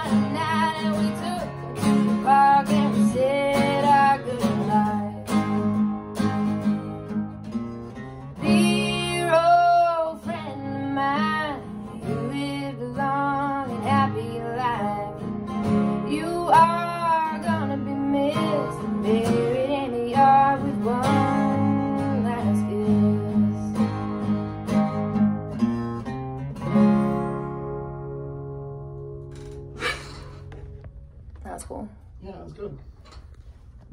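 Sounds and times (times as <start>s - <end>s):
woman singing: 0.0s - 5.6s, 8.4s - 23.9s
acoustic guitars strummed: 0.0s - 31.6s.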